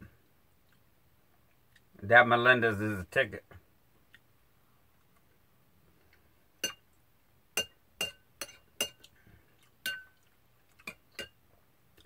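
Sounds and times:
metal spoon clinking glass bowl: 7.6s - 9.1s, 9.8s - 10.2s, 10.9s - 11.4s.

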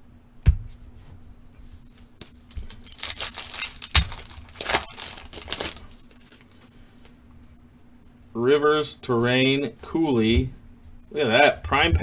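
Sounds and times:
thump: 0.4s - 0.8s
foil wrapper tearing and crinkling: 2.5s - 6.4s.

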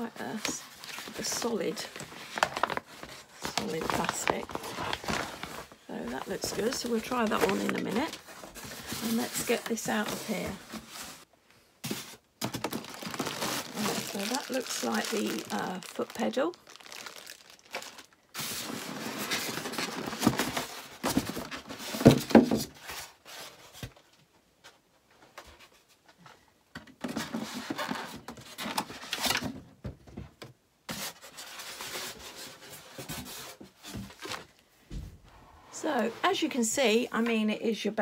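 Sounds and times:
polystyrene rubbing and scraping: 12.7s - 20.1s.

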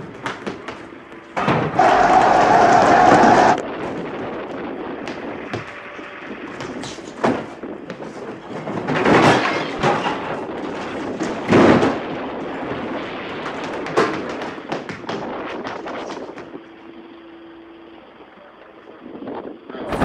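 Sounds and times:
steady rushing noise: 0.0s - 9.0s, 9.8s - 16.9s
sharp bangs and thuds: 0.1s - 16.4s.

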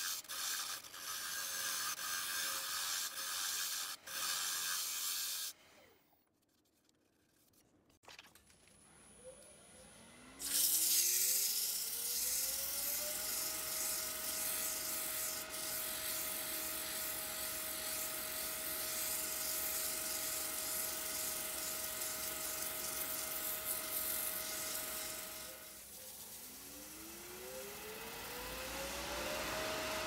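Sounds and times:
sanding pad hissing on wood: 0.0s - 5.6s, 10.4s - 27.0s.

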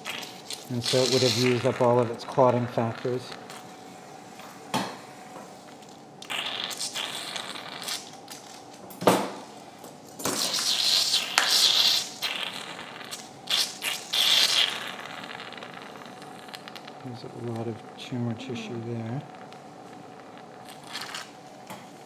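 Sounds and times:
surgical suction hissing: 0.0s - 4.3s, 5.1s - 8.5s, 10.3s - 22.0s.

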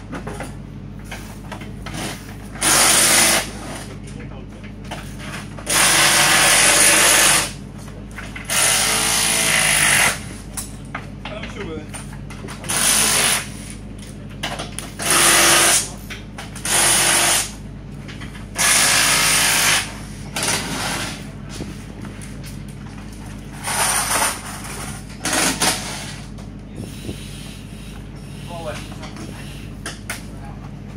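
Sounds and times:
steady low hum: 0.0s - 30.9s
power tool bursts: 2.0s - 3.6s, 5.7s - 7.6s, 8.5s - 10.2s, 12.7s - 13.5s, 15.0s - 15.9s, 16.6s - 17.5s, 18.6s - 21.2s.

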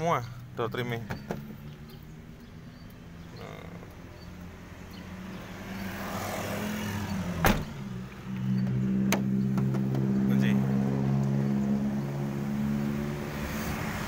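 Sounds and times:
car door shutting: 7.4s - 7.8s.

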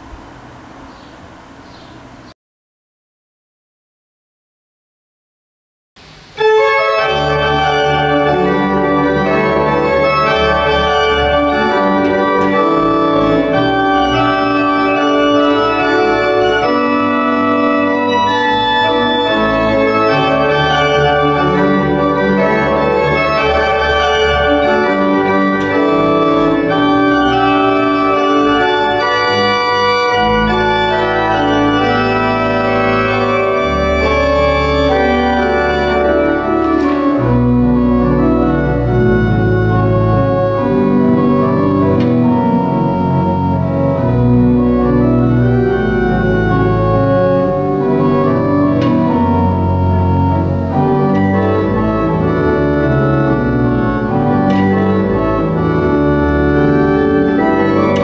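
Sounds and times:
church pipe organ chords: 6.0s - 58.0s.

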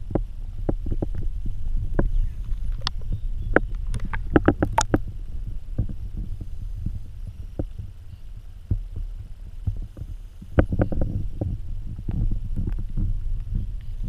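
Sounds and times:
muffled underwater rumble: 0.0s - 14.0s
underwater clicks and knocks: 1.9s - 5.1s, 8.6s - 13.9s.

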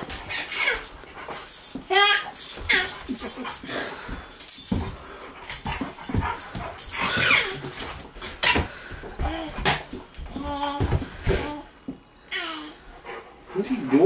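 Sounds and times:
dog whining: 0.0s - 4.0s, 5.5s - 12.8s
dogs yipping and barking: 0.0s - 8.8s.

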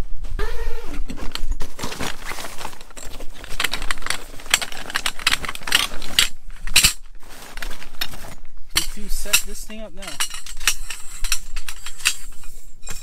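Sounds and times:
nylon bag fabric rustling: 0.0s - 9.1s
metal poles clicking and rattling: 1.1s - 13.0s.

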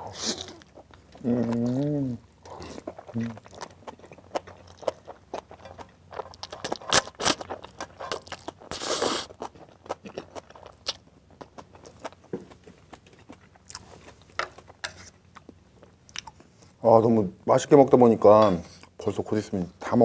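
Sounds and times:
wet chewing: 0.3s - 16.5s
slurping noodles: 8.7s - 9.3s.

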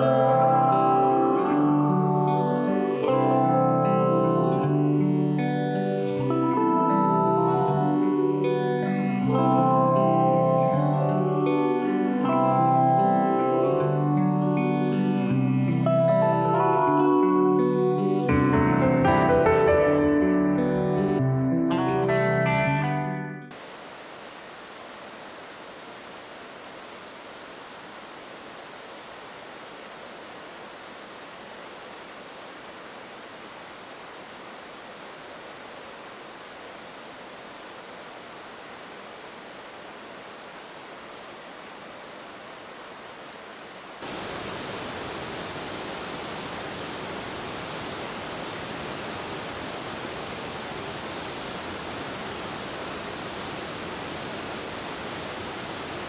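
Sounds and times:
rocky creek rushing: 23.5s - 56.0s
waterfall rushing: 23.5s - 56.0s.

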